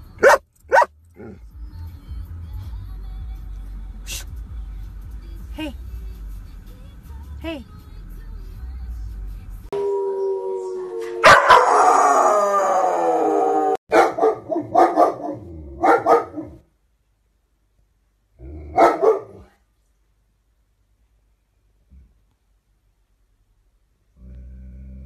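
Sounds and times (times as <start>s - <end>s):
dog barking: 0.2s - 1.4s, 11.2s - 11.9s, 13.9s - 16.6s, 18.7s - 19.5s
puppy howling: 9.7s - 15.5s.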